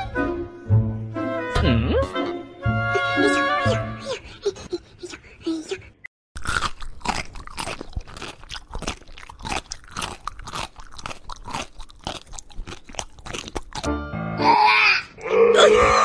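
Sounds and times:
cat chewing crunches: 0:06.4 - 0:13.9.

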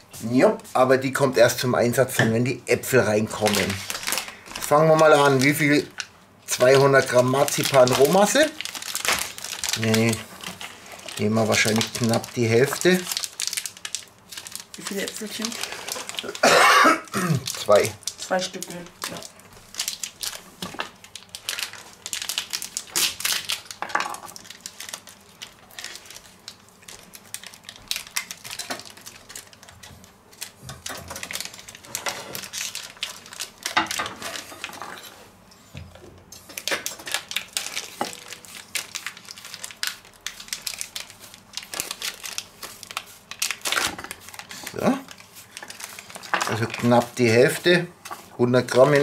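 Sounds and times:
wrapper crinkling and tearing: 0:03.0 - 0:34.8, 0:36.4 - 0:49.0.

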